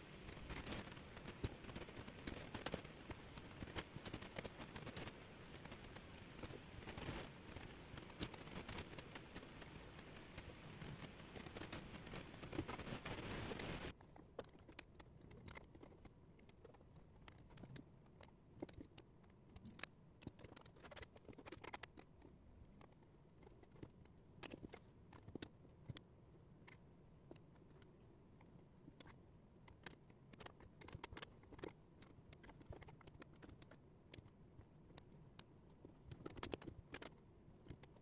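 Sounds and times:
steady hiss: 0.0s - 14.0s
wooden puzzle pieces clicking: 0.2s - 38.0s.

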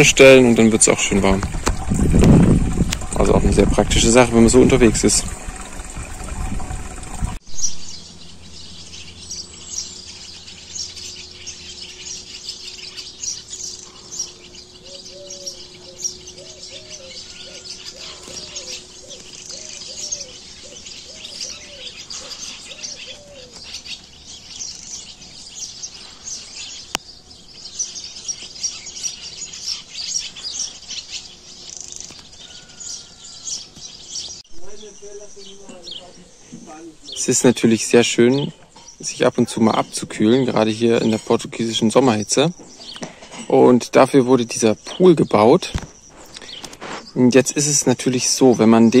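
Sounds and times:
small birds chirping: 0.0s - 49.0s
low cooing call: 13.9s - 23.6s.

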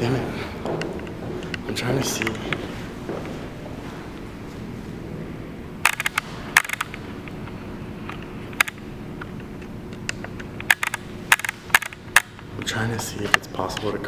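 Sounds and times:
steady low hum: 0.0s - 14.0s
sharp clicks and knocks: 0.6s - 2.6s, 5.8s - 7.4s, 8.1s - 14.0s.

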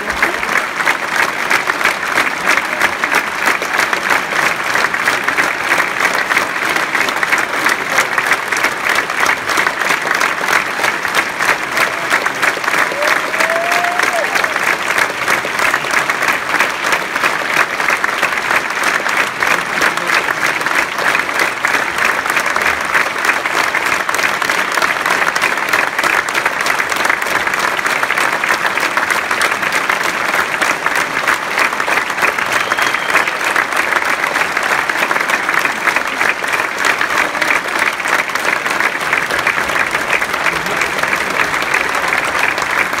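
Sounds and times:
audience applauding: 0.0s - 43.0s.

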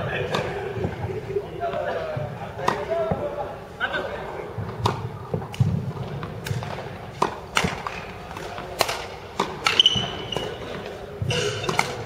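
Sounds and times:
racket striking shuttlecock: 0.2s - 1.0s, 2.6s - 2.9s, 4.8s - 12.0s
shoe squeaking: 9.7s - 10.7s.

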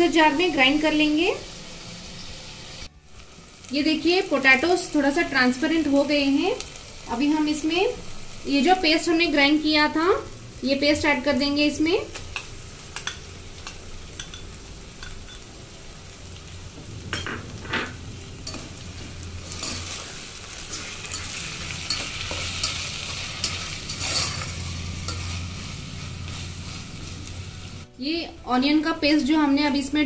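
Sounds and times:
potatoes sizzling in oil: 0.0s - 30.0s
metal spatula scraping pan: 17.2s - 27.1s.

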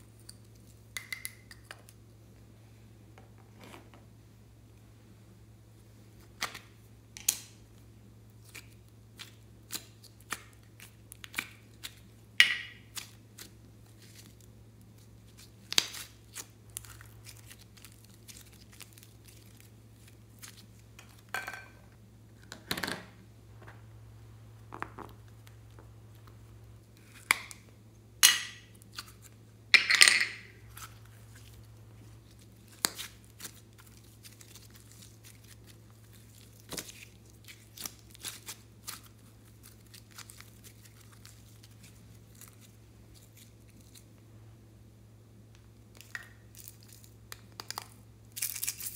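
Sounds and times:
faint low hum: 0.0s - 48.9s
clay squishing: 5.8s - 22.7s, 23.5s - 44.4s.

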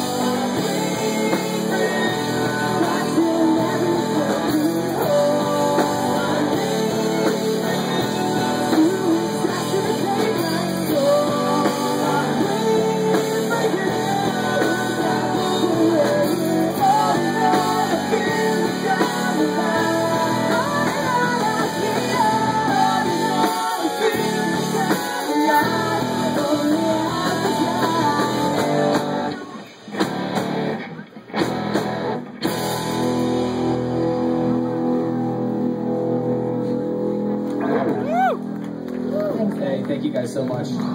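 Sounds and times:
person singing: 0.0s - 29.6s
live rock band playing: 0.0s - 40.9s.

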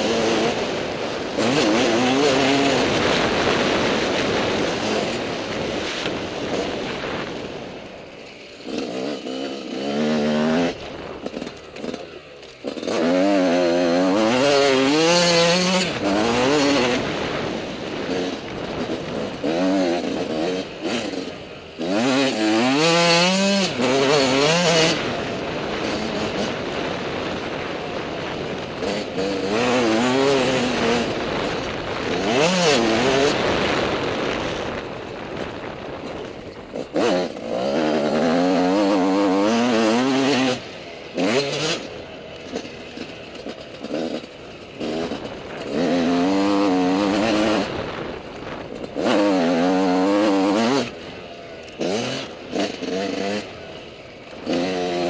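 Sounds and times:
dirt bike engine revving: 0.0s - 55.0s
wind on microphone: 44.8s - 51.0s.

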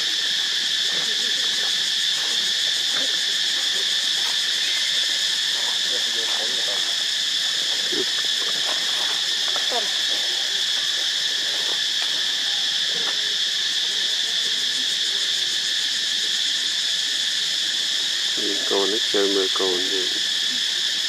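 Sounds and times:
insect chorus: 0.0s - 21.0s.

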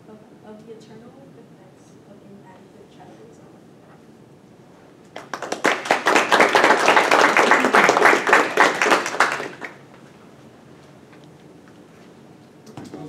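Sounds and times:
small group clapping: 5.1s - 10.0s.

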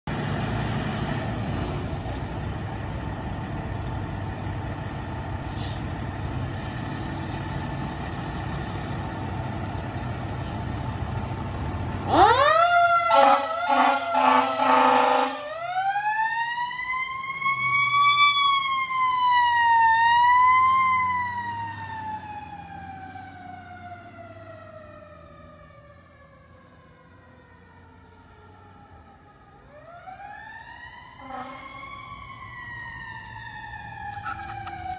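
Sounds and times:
diesel engine rumble: 0.1s - 14.7s
mechanical siren wailing: 12.1s - 34.9s
air horn blasts: 13.1s - 15.5s, 31.2s - 31.7s.

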